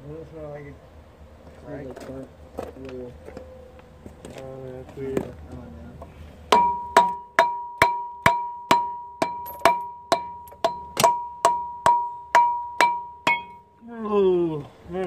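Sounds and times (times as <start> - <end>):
rubber mallet striking metal: 6.5 - 13.6.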